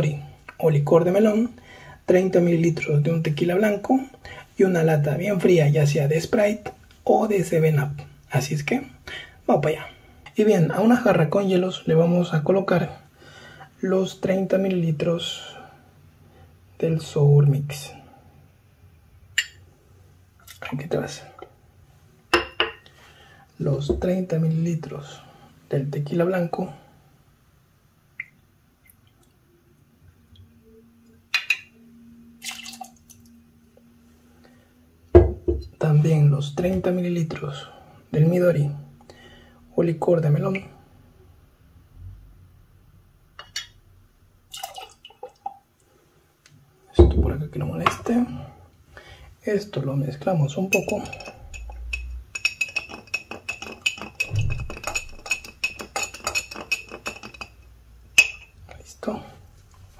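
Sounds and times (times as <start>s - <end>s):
metal jigger clinking on glass: 50.6s - 57.6s.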